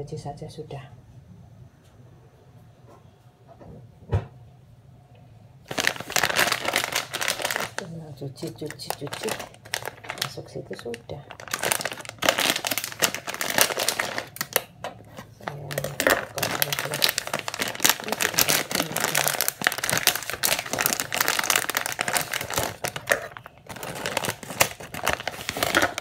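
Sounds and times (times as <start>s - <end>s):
plastic bag and foil crinkling: 5.7s - 26.0s.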